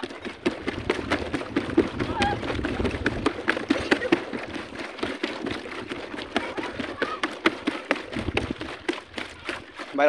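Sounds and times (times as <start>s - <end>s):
footsteps on plastic walkway: 0.0s - 10.0s.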